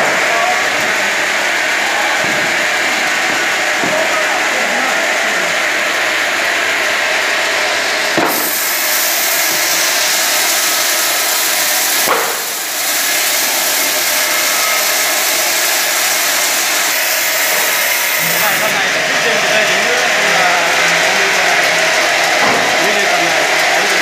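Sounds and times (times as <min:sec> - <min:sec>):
knock: 0:03.3 - 0:04.1, 0:08.2 - 0:08.6, 0:22.4 - 0:22.8
rip saw cutting wood: 0:08.1 - 0:24.0.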